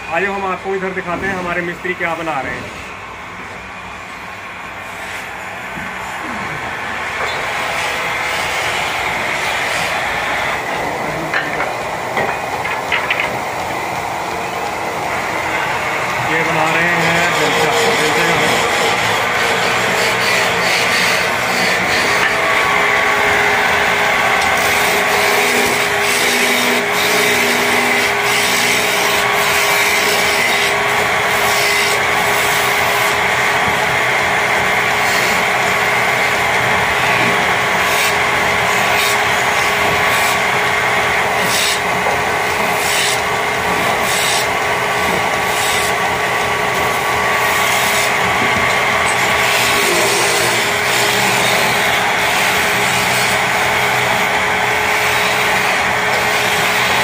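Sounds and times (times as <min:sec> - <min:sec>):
wood lathe whining: 0:04.6 - 0:57.0
chisel scraping spinning wood: 0:16.2 - 0:22.9, 0:47.6 - 0:53.3.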